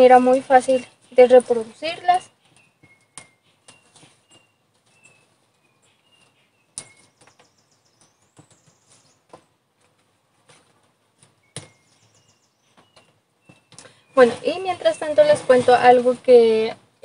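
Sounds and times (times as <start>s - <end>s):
bird chirps: 0.0s - 9.4s, 11.2s - 16.0s.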